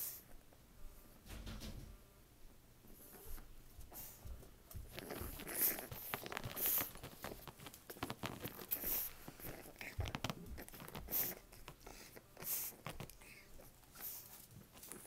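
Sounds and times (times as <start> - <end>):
puppy scratching at legs: 2.9 - 15.0
cloth rustling: 4.8 - 11.8.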